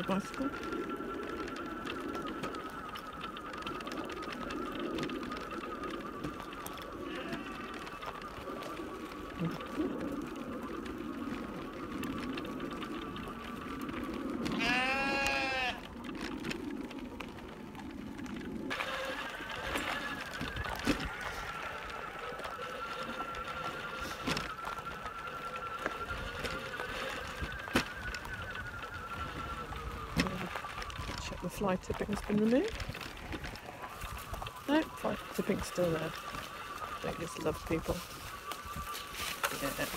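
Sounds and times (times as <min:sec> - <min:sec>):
tyres rumbling on gravel: 0:00.0 - 0:39.9
bleat-like animal call: 0:07.0 - 0:07.9, 0:14.5 - 0:15.8
electric motor whine: 0:18.7 - 0:39.9.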